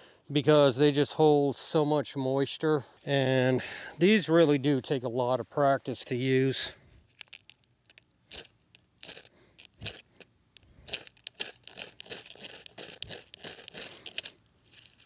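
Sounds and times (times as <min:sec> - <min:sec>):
fire-starter rod scraping: 0:07.3 - 0:15.0.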